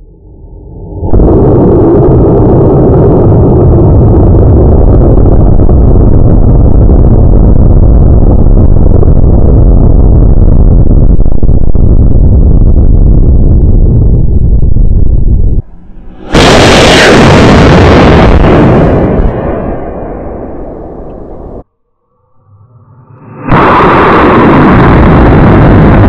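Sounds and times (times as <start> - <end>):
rocket motor roaring: 5.0 - 21.6.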